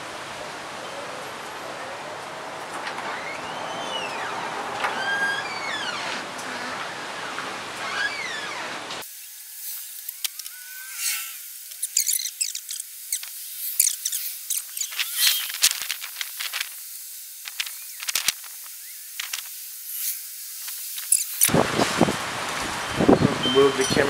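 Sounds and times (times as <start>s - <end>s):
wind gusting through trees: 0.0s - 9.0s, 11.4s - 24.0s
rustles and crackles: 9.6s - 23.0s.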